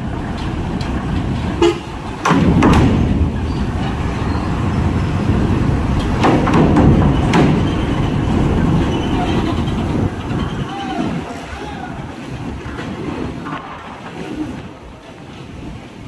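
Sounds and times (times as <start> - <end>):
clanks and thumps of ramp plates: 0.0 - 4.2, 5.9 - 10.7.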